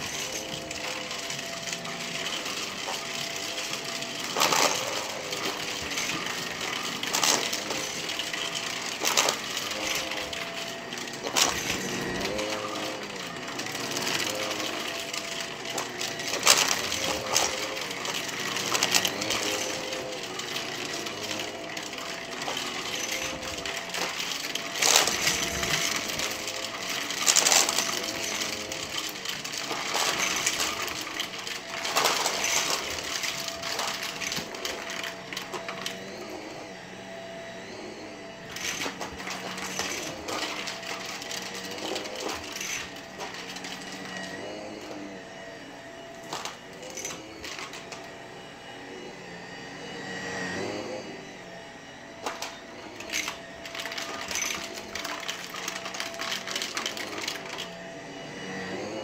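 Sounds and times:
coins clinking and rattling: 0:00.0 - 0:36.6, 0:38.5 - 0:45.1, 0:46.1 - 0:48.1, 0:52.2 - 0:57.8
vacuum cleaner motor hum: 0:00.0 - 0:59.0.

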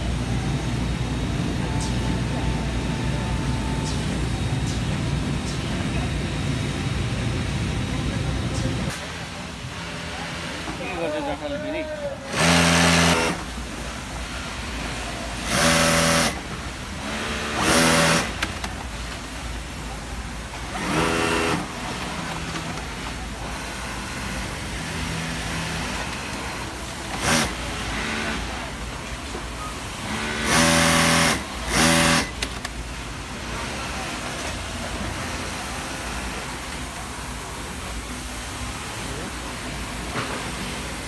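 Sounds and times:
factory background noise: 0:00.0 - 0:41.0
industrial sewing machine stitching: 0:12.3 - 0:13.4, 0:14.8 - 0:18.7, 0:20.6 - 0:28.8, 0:30.0 - 0:32.5.

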